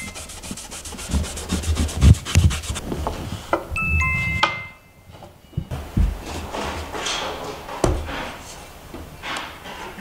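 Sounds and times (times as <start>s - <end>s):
cloth rubbing on wood: 0.0s - 3.4s
brief high ringing tones: 3.8s - 5.7s.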